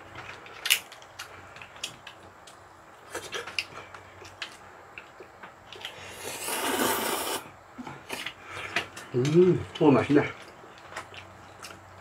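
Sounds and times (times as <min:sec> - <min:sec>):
noodle slurping: 0:05.9 - 0:07.5.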